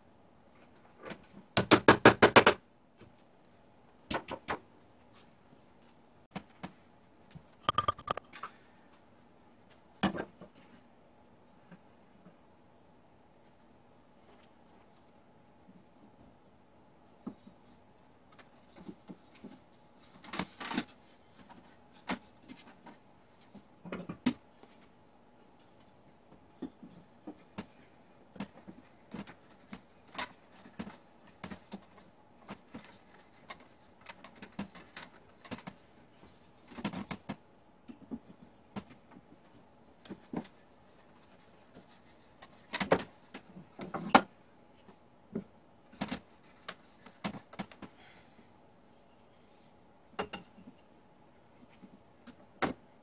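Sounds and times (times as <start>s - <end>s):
wooden chair parts knocking and rubbing: 7.7s - 8.2s.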